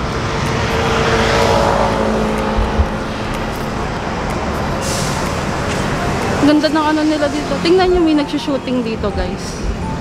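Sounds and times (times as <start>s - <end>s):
passing vehicle engine hum: 0.0s - 10.0s
road noise: 0.0s - 10.0s.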